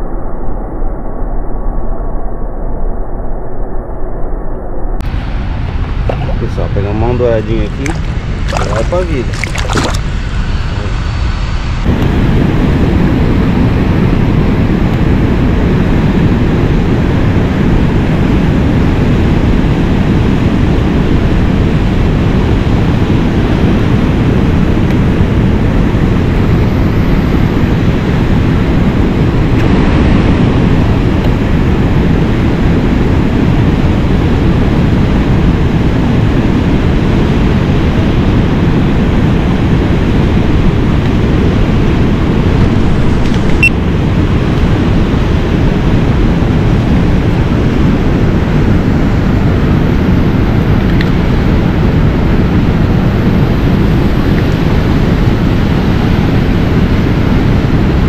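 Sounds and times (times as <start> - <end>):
water rushing over a weir: 7.8 - 10.1.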